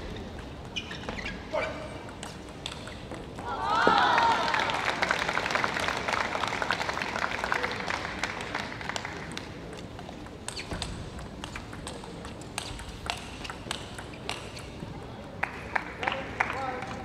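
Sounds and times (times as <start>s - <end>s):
table tennis ball clicking: 2.0s - 3.4s, 9.4s - 15.1s
crowd applause: 3.6s - 9.2s.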